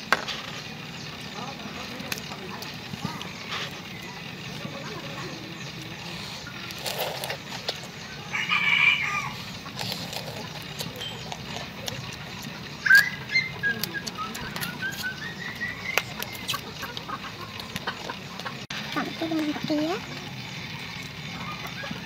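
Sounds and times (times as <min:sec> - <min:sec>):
bird calling: 0:02.9 - 0:22.0
shrimp shells cracking: 0:15.9 - 0:18.6.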